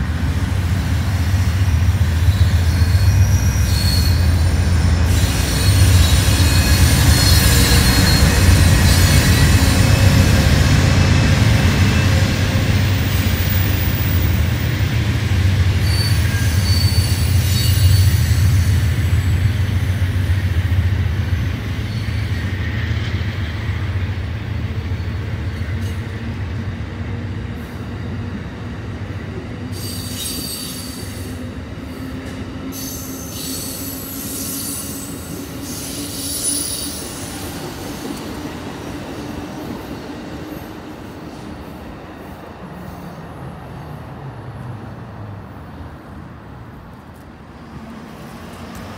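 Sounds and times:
low train rumble: 0.0 - 48.9
wheel flanges squealing: 2.2 - 10.2, 15.8 - 19.4.

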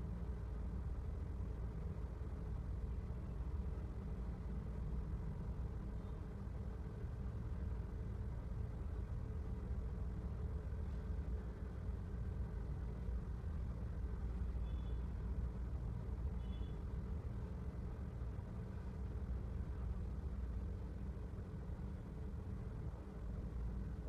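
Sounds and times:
low mechanical rumble: 0.0 - 24.0
faint high chirps: 14.6 - 15.0.

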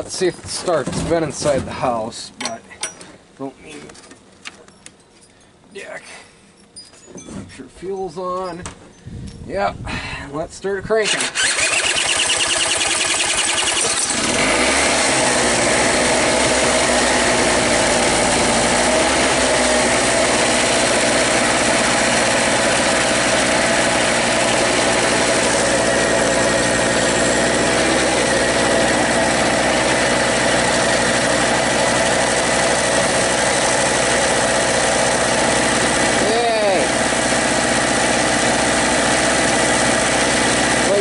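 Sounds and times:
two-stroke generator running: 11.0 - 41.0
cordless drill spinning: 11.1 - 36.3.

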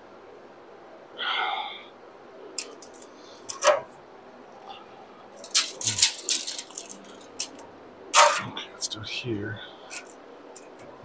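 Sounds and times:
tape measure clicks and rattles: 2.6 - 3.8, 5.4 - 7.6, 8.2 - 8.5.

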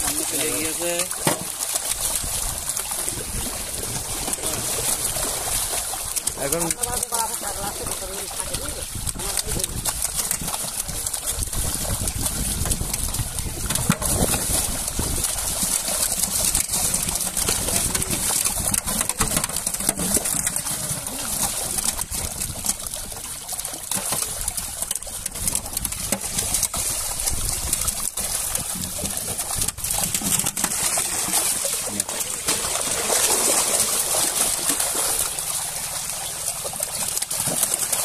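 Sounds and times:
fish slapping water surface: 0.0 - 38.0
water churning and splashing: 0.0 - 38.0.

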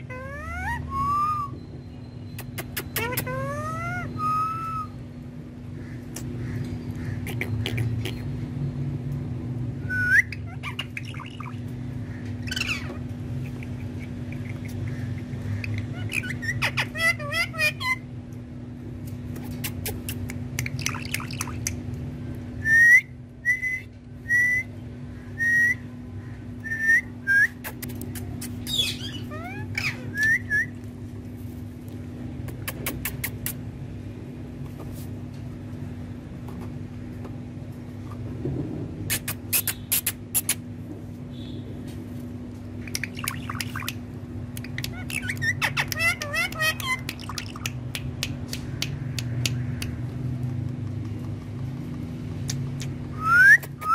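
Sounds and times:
parakeet whistling: 0.0 - 1.7, 2.8 - 5.0, 9.8 - 11.6, 15.7 - 18.0, 28.7 - 30.8, 44.7 - 47.6
low steady hum: 0.0 - 53.9.

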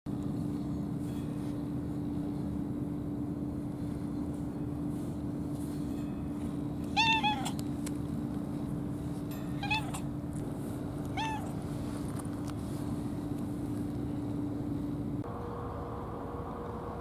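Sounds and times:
steady low hum: 0.1 - 17.0
cat meowing: 6.9 - 7.6, 9.6 - 10.1, 11.1 - 11.6.

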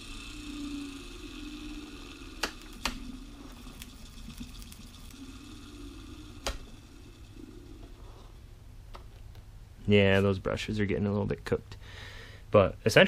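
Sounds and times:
electric motor humming: 0.0 - 8.6.

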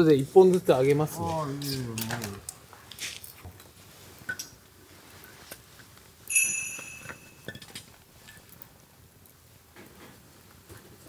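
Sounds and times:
sharp ringing metallic clink: 6.3 - 7.5.

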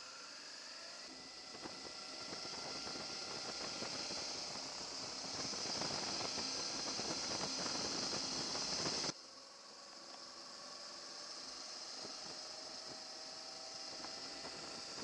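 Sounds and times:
crackle: 1.3 - 9.1
rushing wind and road noise: 1.7 - 9.1.

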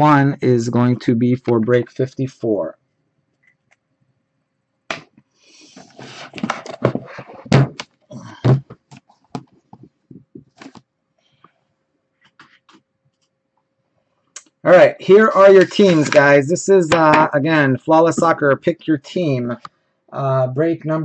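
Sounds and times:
boxes scraping and rustling: 5.6 - 7.6, 15.2 - 16.4
box thumping down: 6.3 - 7.8.

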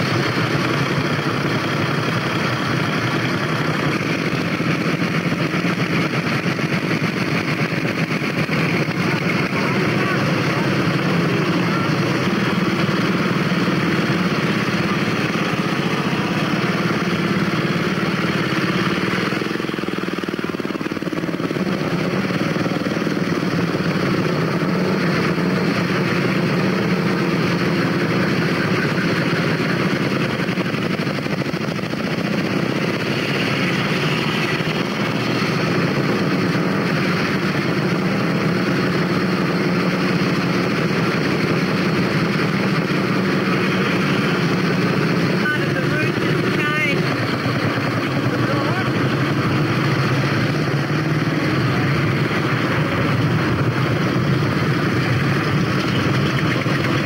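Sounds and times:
motorcycle engines running: 0.0 - 57.0.

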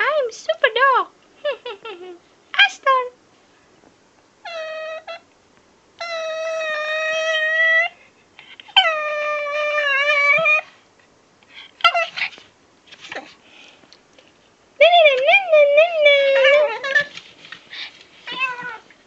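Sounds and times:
puppy whining: 4.4 - 5.3, 6.0 - 10.8, 11.7 - 13.4, 15.9 - 17.2, 18.2 - 19.0.

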